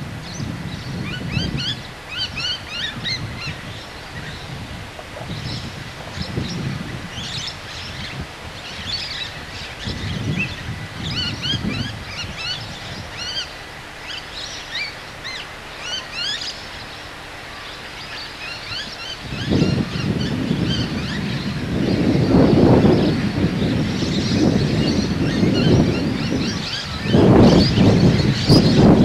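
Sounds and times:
wind buffeting microphone: 0.0 - 14.4, 18.6 - 29.0
birds chirping: 0.3 - 29.0.

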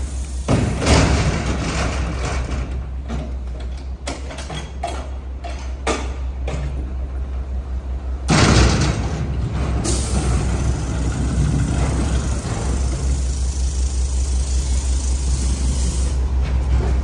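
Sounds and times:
metal clanks and rattles: 0.4 - 7.0, 8.3 - 13.2
truck diesel engine idling: 9.9 - 16.2.

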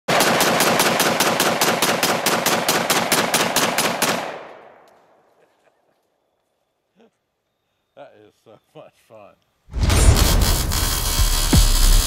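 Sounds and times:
rapid rifle shots: 0.1 - 4.4
gunshot echo: 9.7 - 12.0.

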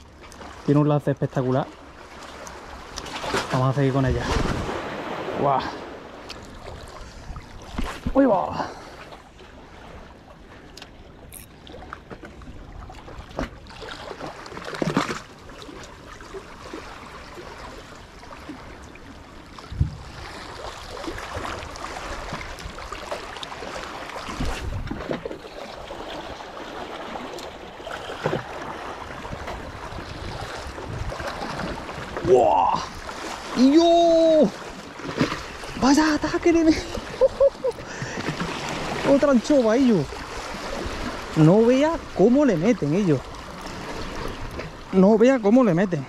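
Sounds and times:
sea water washing: 0.0 - 46.0
water splashes: 0.0 - 46.0
wind buffeting microphone: 4.1 - 5.3, 19.6 - 22.8, 24.3 - 25.1, 29.0 - 33.0.

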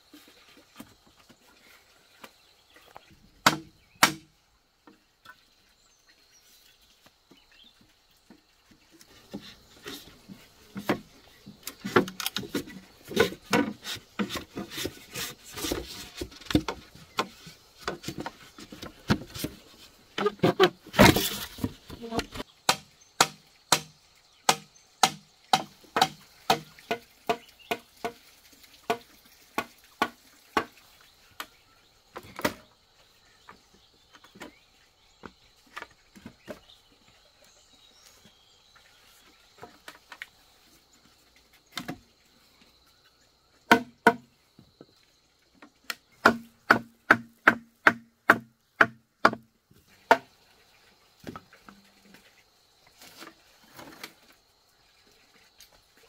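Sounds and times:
tool striking bamboo: 3.4 - 4.3, 20.2 - 28.2, 28.9 - 30.8, 43.7 - 44.3, 45.9 - 49.5.

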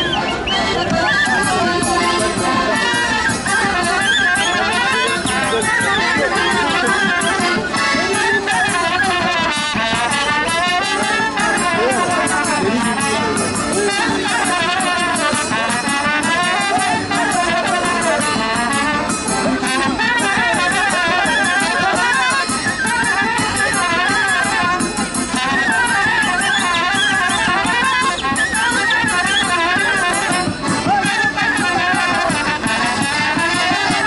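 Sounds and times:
brass band playing folk dance: 0.0 - 34.0
steady drum beat: 0.0 - 34.0.

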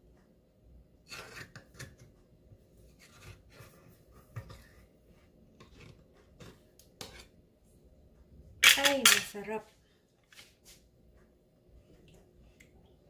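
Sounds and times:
spatula scraping a pan: 1.0 - 2.1, 5.6 - 7.4.

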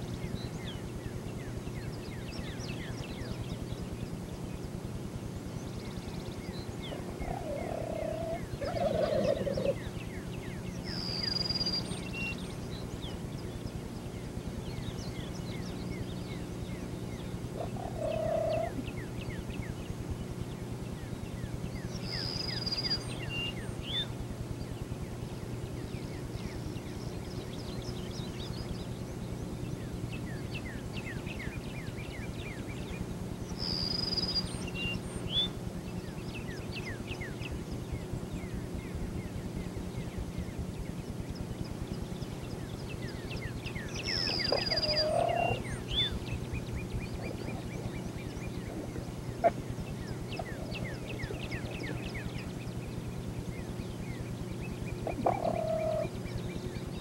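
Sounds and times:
steady low hum: 0.0 - 57.0
turkeys gobbling: 7.0 - 9.8, 17.6 - 18.8, 44.2 - 45.7, 47.2 - 49.7, 50.3 - 52.0, 55.0 - 56.1.

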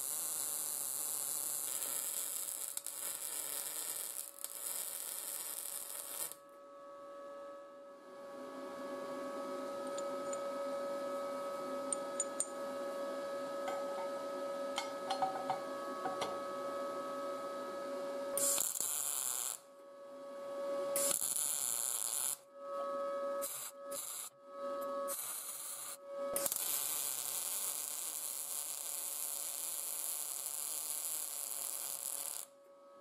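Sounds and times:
welding arc crackling: 0.0 - 6.4, 18.4 - 19.6, 21.0 - 22.4, 23.4 - 24.3, 25.1 - 32.5
steady hum: 5.2 - 21.1.

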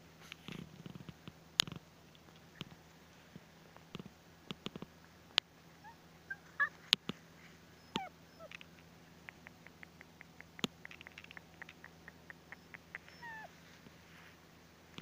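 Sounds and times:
light ticks and crackles: 0.2 - 5.6, 6.7 - 15.0
puppy whimpering: 5.8 - 6.8, 7.8 - 8.6, 11.3 - 13.6.

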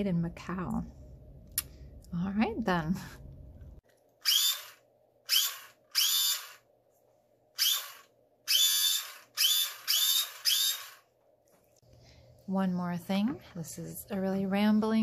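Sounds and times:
toy laser pistol whirring buzz: 4.2 - 6.6, 7.6 - 11.0.

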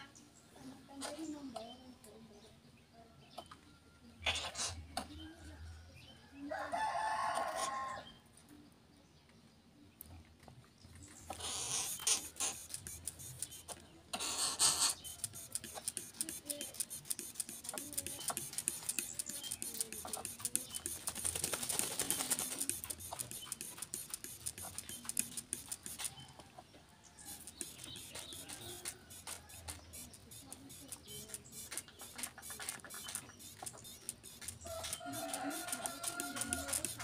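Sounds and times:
wet wings fluttering: 15.1 - 26.1
bird splashing in water: 17.1 - 25.0.

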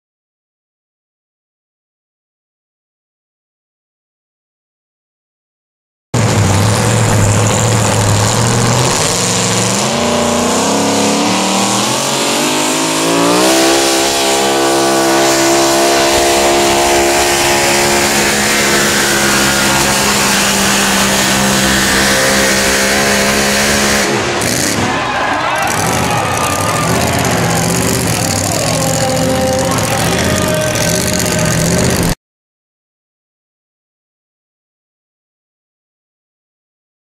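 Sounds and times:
truck engine revving under load: 6.2 - 32.2.

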